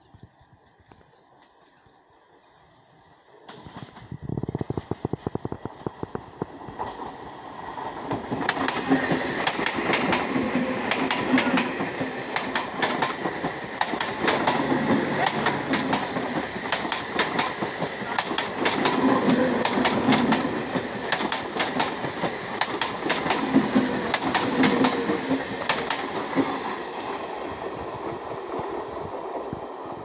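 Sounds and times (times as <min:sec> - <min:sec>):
train wheels clattering: 0:07.8 - 0:26.8.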